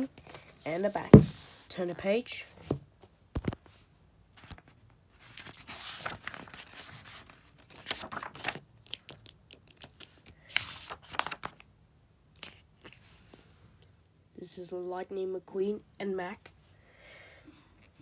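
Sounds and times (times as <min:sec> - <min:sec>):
book pages turning: 0:04.4 - 0:11.7, 0:12.4 - 0:13.0.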